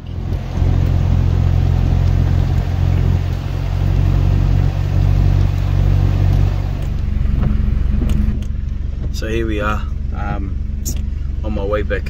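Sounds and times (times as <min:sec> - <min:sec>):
truck engine and tyres droning: 0:00.0 - 0:12.0.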